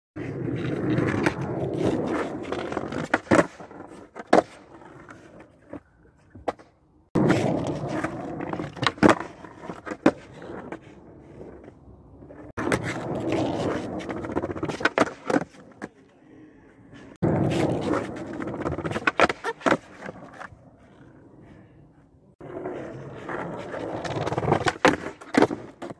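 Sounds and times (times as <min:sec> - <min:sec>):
skateboard wheels rolling: 0:00.2 - 0:25.9
skateboard clacks: 0:23.2 - 0:25.9.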